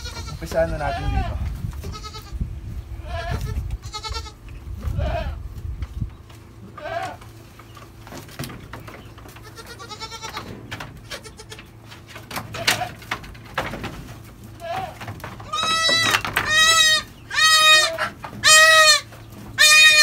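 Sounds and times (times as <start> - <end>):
goats bleating: 0.0 - 2.4, 3.0 - 5.4, 6.6 - 7.4, 9.3 - 11.8, 12.5 - 13.1, 14.4 - 20.0
bumps and rustling on wooden rails: 0.0 - 20.0.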